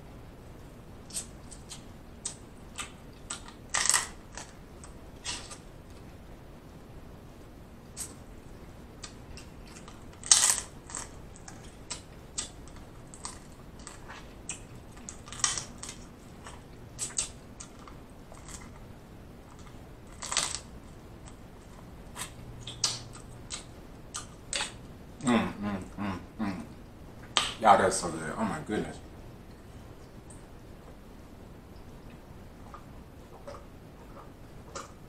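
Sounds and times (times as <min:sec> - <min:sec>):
wet mouth clicks and lip smacks: 0:22.6 - 0:24.8.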